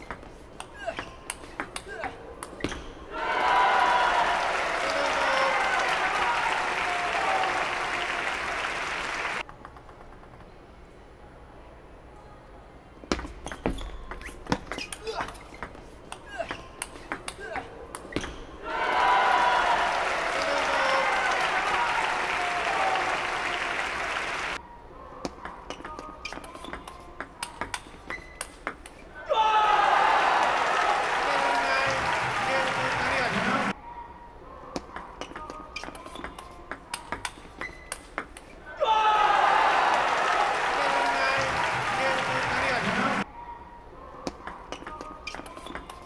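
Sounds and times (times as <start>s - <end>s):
people shouting: 3.1s - 7.6s, 18.6s - 23.2s, 29.2s - 32.7s, 38.7s - 42.0s
spectators clapping and cheering: 3.1s - 9.5s, 18.6s - 24.6s, 29.4s - 33.8s, 38.9s - 43.3s.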